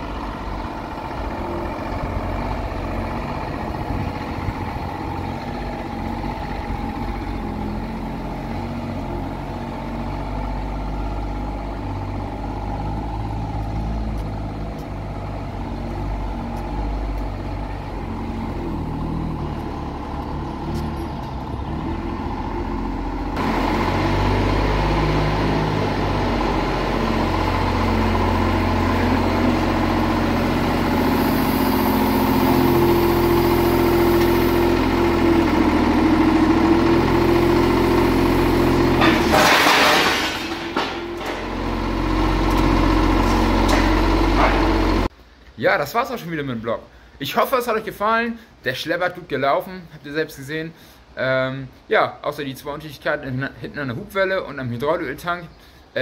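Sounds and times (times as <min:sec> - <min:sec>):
tractor engine running under load: 0:00.0 - 0:45.1
rising whine: 0:12.8 - 0:39.5.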